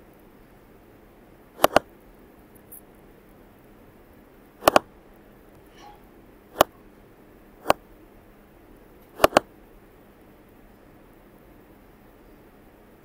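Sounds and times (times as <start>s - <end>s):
computer mouse button clicks: 1.6s - 1.8s, 4.6s - 4.8s, 9.2s - 9.5s.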